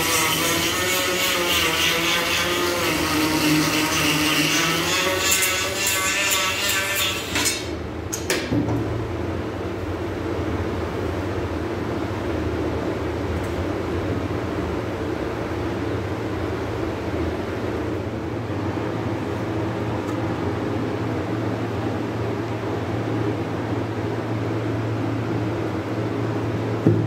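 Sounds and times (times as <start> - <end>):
power grinder carving wood: 0.0 - 7.7
low machine hum: 0.0 - 27.0.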